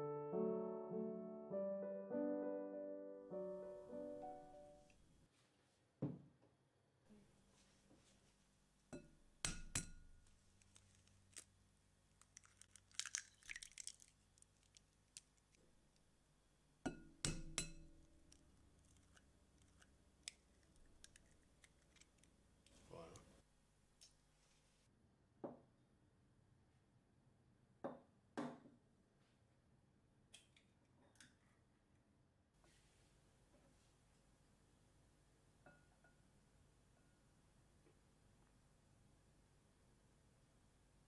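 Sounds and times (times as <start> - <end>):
eggshell crackling apart: 10.6 - 15.6, 18.3 - 22.4
eggs tapping on glass bowl: 16.9 - 17.9.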